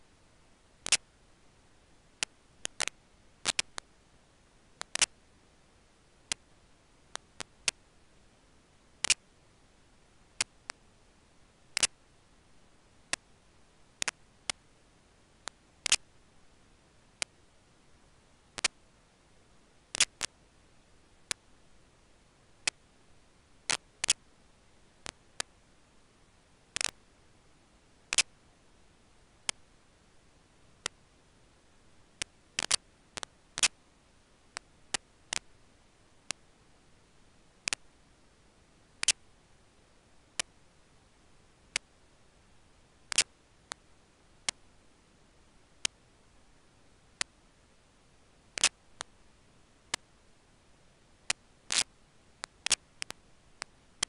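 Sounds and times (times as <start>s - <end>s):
faint steady hiss: 0.0s - 54.0s
sharp dry clicks: 0.8s - 1.1s, 2.2s - 3.9s, 4.8s - 5.1s, 9.0s - 9.2s, 15.4s - 16.1s, 19.9s - 20.3s, 23.7s - 24.2s, 26.8s - 27.0s, 32.2s - 33.8s, 37.6s - 37.9s, 39.0s - 39.2s, 51.3s - 53.7s.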